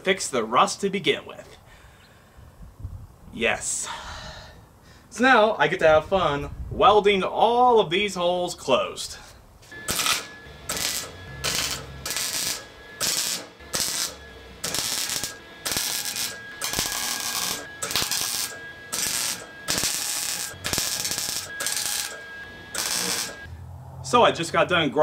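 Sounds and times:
welder crackling in short bursts: 0:09.7 - 0:23.5.

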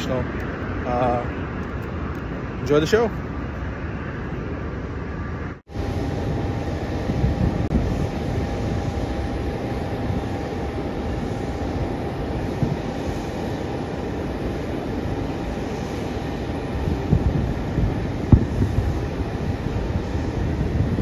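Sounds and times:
airport ramp rumble and hiss: 0:00.0 - 0:21.0
thin steady whine: 0:00.0 - 0:21.0
dull low thumps: 0:17.0 - 0:19.4.

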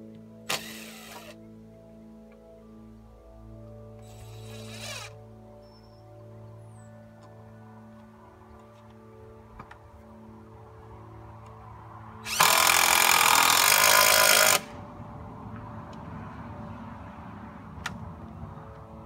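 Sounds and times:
cordless drill driving screw: 0:00.5 - 0:01.4, 0:04.0 - 0:05.2, 0:12.3 - 0:14.7.

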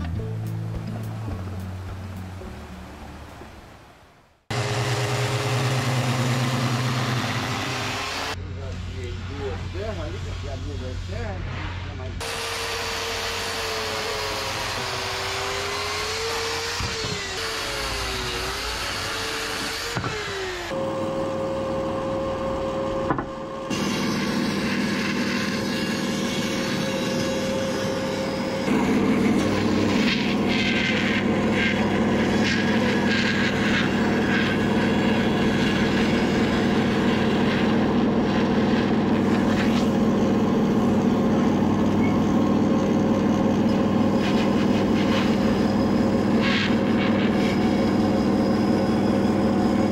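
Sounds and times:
bandsaw cutting wood: 0:04.5 - 0:08.4, 0:12.2 - 0:49.9
electric chainsaw cutting wood: 0:04.5 - 0:08.4, 0:12.2 - 0:49.9.

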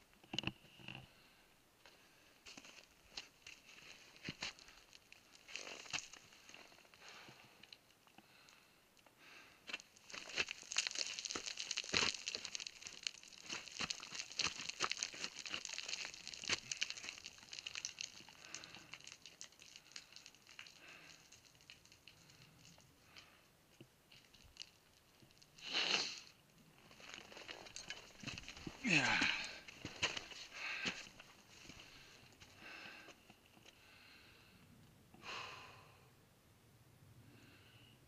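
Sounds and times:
footsteps crunching on scree: 0:02.5 - 0:07.3, 0:09.7 - 0:22.8, 0:24.1 - 0:33.7
small stones clicking: 0:09.8 - 0:23.3, 0:24.1 - 0:32.4
short hiss: 0:25.6 - 0:26.3.

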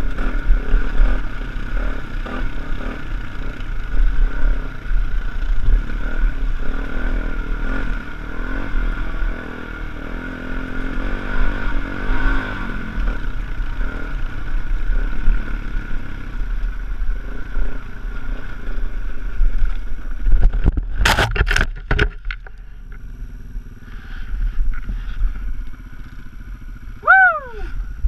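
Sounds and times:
dirt bike engine running: 0:00.0 - 0:28.0
wind noise: 0:19.2 - 0:22.5
bike crashing on rocks: 0:20.4 - 0:22.4
person crying out: 0:27.0 - 0:27.9.

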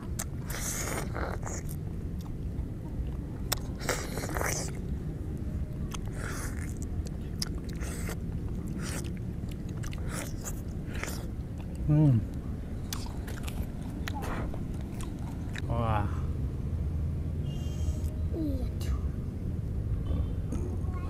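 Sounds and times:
wet juicy slurping and chewing: 0:00.1 - 0:05.0, 0:05.9 - 0:11.9, 0:12.9 - 0:15.6
mouth clicks: 0:03.5 - 0:04.8.

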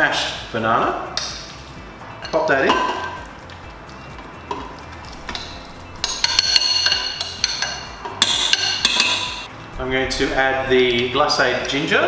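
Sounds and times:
glass ringing: 0:02.2 - 0:03.3, 0:04.4 - 0:09.5.

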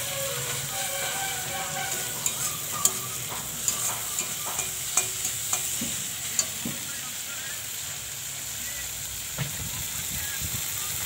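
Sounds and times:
metal spatula scraping pan: 0:00.0 - 0:06.6
food sizzling in oil: 0:00.0 - 0:11.0.

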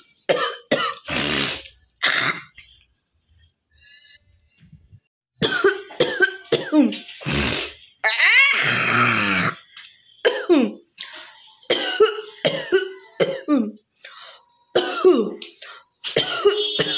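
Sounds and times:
woman coughing: 0:05.4 - 0:07.0, 0:10.2 - 0:10.8, 0:11.7 - 0:13.8, 0:14.8 - 0:16.9.

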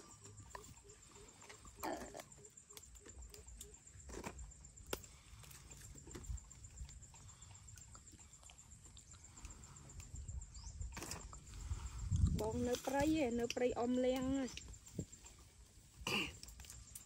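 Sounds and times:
wind rumble on microphone: 0:09.9 - 0:15.4.

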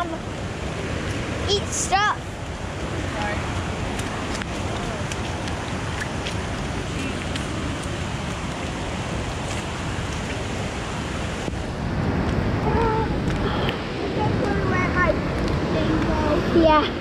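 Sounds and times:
heavy rain: 0:00.0 - 0:17.0
raindrops tapping on camera: 0:03.1 - 0:10.5, 0:12.2 - 0:13.8.

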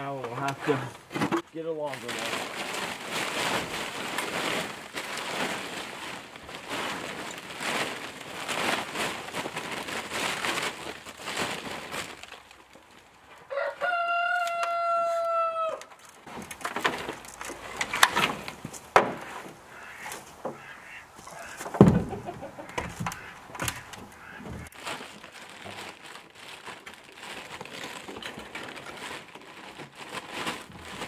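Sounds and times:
plastic tarp crinkling: 0:00.0 - 0:15.4, 0:16.0 - 0:31.0
rooster crowing: 0:13.5 - 0:15.9.

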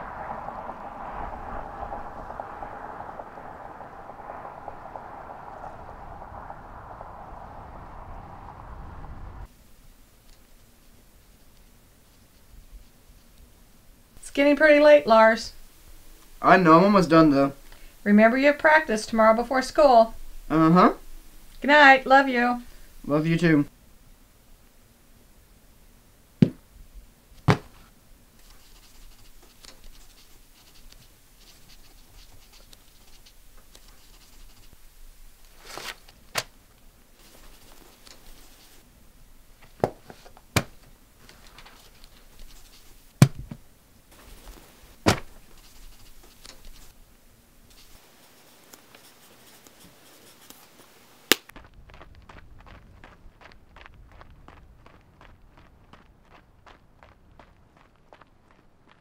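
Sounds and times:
pencil scratching on paper: 0:28.4 - 0:34.8, 0:45.5 - 0:47.0, 0:47.7 - 0:51.2.

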